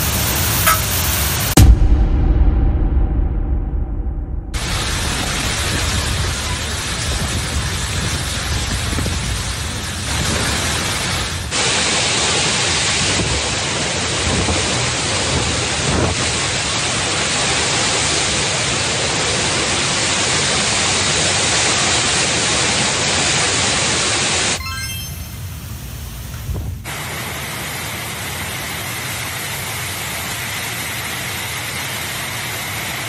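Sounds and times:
storm wind: 1.4 - 18.2
heavy driving rain: 4.6 - 24.6, 26.8 - 33.0.

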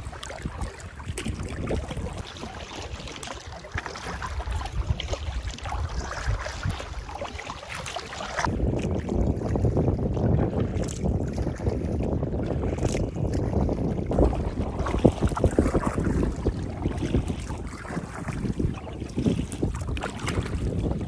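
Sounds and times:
paddle splashing in water: 0.0 - 21.0
wind on microphone: 0.0 - 21.0.

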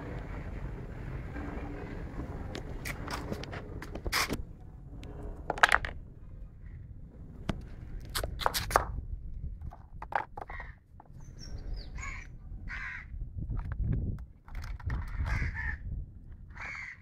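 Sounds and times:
motorbike engine rumble: 0.0 - 6.2.

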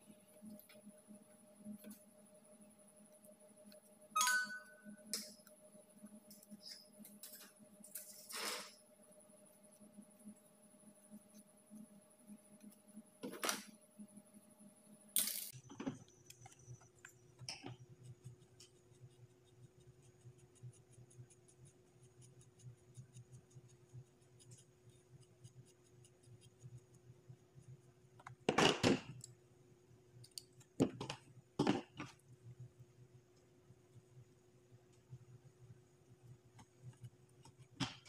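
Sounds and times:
faint steady hum: 0.0 - 38.0
small clicks and ticks: 30.2 - 31.3
objects clattering on table: 30.8 - 32.2.

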